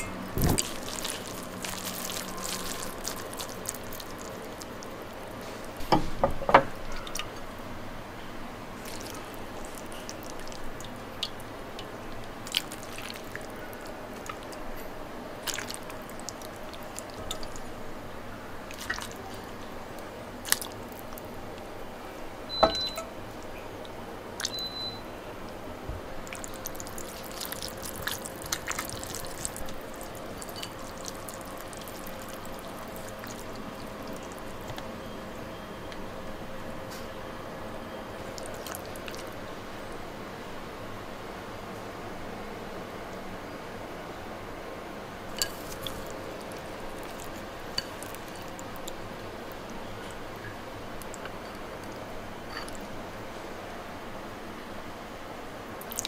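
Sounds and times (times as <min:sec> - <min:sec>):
low background hum: 0:00.0 - 0:56.0
soup dripping and splashing: 0:00.4 - 0:05.5, 0:06.7 - 0:07.4, 0:08.8 - 0:14.7, 0:15.4 - 0:17.8, 0:18.6 - 0:21.7, 0:22.5 - 0:25.0, 0:26.2 - 0:34.9, 0:38.2 - 0:39.5, 0:45.3 - 0:52.9, 0:55.8 - 0:56.0
chopsticks and ladle clinking on bowl: 0:30.3 - 0:31.2, 0:45.3 - 0:48.5.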